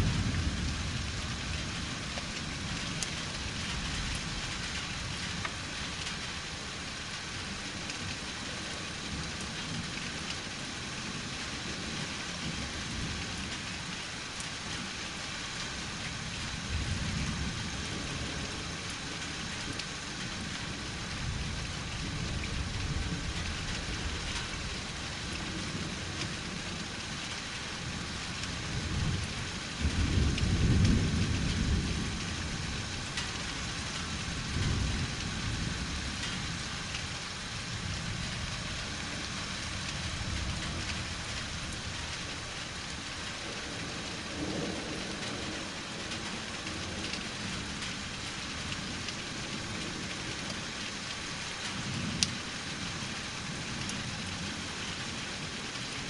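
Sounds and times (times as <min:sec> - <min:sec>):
thunder rumbling: 0:00.0 - 0:06.1, 0:27.7 - 0:50.4
steady rain falling: 0:00.0 - 0:56.0.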